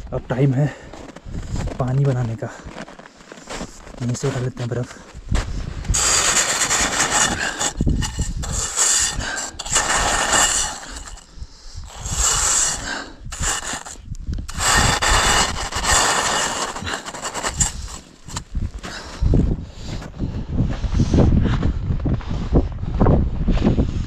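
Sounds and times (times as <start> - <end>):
snow scraped into metal pot: 5.8 - 18.5.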